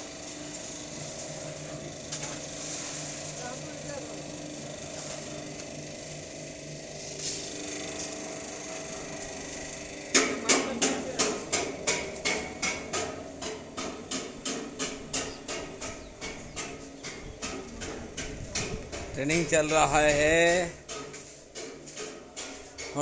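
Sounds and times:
hammer striking metal: 0:10.1 - 0:23.0.

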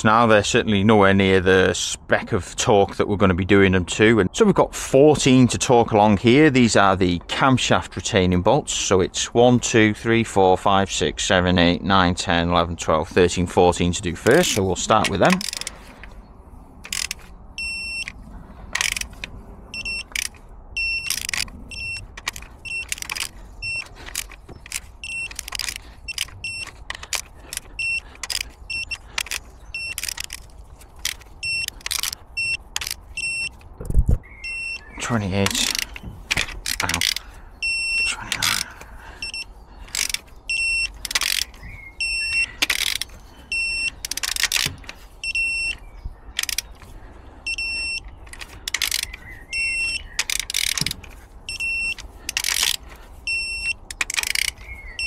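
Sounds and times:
wrench ratcheting: 0:14.2 - 0:16.1, 0:16.8 - 0:33.7, 0:35.5 - 0:45.8, 0:46.4 - 0:46.8, 0:47.5 - 0:54.7.

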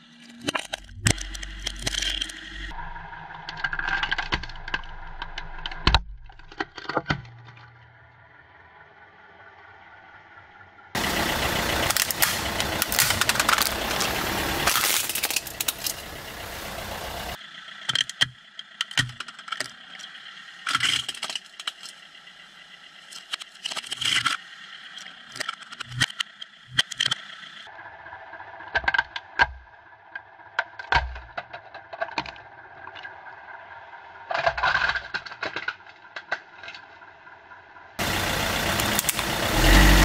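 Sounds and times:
scattered clicks and ticks: 0:00.0 - 0:02.8, 0:03.4 - 0:07.4, 0:11.0 - 0:27.7, 0:38.0 - 0:39.8
car tyre and engine noise: 0:00.0 - 0:40.0
plastic crunching and cracking: 0:00.3 - 0:02.6, 0:11.8 - 0:16.1, 0:20.7 - 0:22.0.

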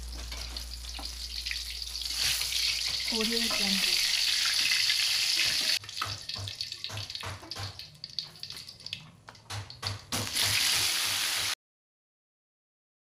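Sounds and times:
oil sizzling in a wok: 0:00.0 - 0:08.9, 0:10.1 - 0:11.6.

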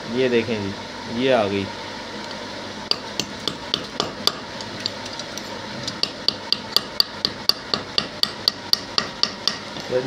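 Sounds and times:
small hammer tapping metal: 0:05.9 - 0:09.7.

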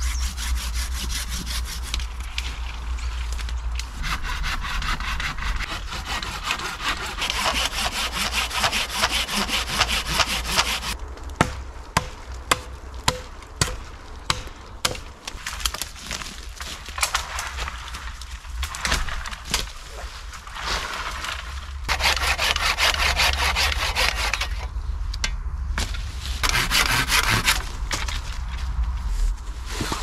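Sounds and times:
saw rasping through wood: 0:00.0 - 0:02.0, 0:04.0 - 0:11.0, 0:21.9 - 0:24.6, 0:26.4 - 0:27.6.

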